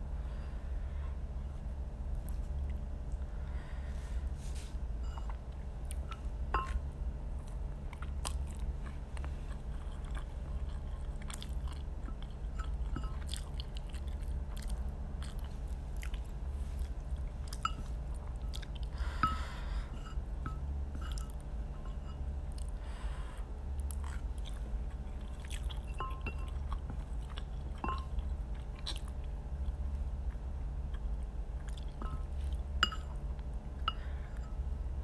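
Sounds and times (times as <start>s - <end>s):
steady low hum: 0.0s - 35.0s
person chewing noodles: 7.4s - 19.8s, 22.5s - 34.5s.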